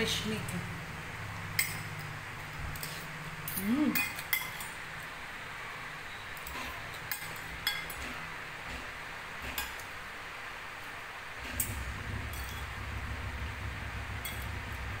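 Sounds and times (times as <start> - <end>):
cutlery clinking on plate: 2.7 - 4.8, 6.4 - 8.8.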